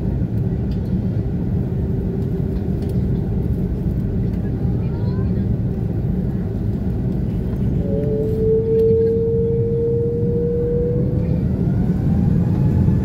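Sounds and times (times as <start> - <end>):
jet low rumble: 0.0 - 13.0
faint rising whine: 7.7 - 13.0
steady whining tone: 7.7 - 13.0.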